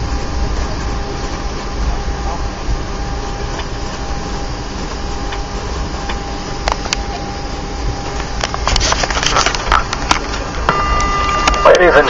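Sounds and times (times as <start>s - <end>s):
airliner cabin rumble and hiss: 0.0s - 12.0s
faint steady whine: 0.0s - 12.0s
sharp clicks and rattles: 8.1s - 10.6s.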